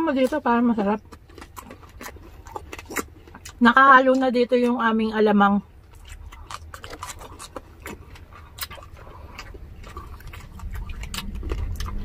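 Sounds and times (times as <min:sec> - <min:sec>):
crisp food crackling: 0:00.0 - 0:12.0
crunchy chewing: 0:00.0 - 0:12.0.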